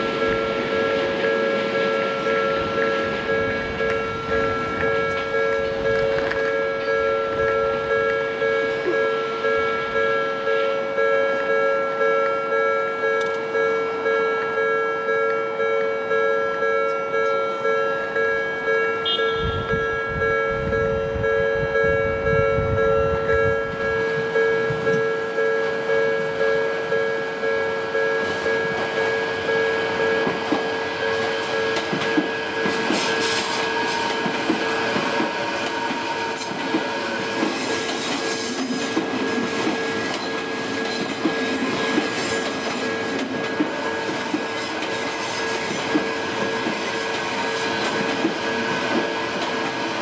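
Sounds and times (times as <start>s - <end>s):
railway crossing bell ringing: 0.0s - 50.0s
train wheels clattering: 28.0s - 50.0s.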